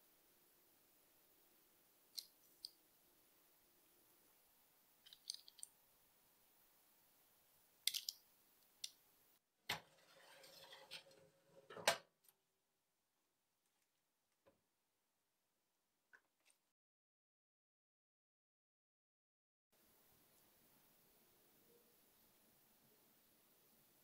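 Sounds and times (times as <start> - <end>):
baking tray scraping on oven rack: 9.7 - 11.9.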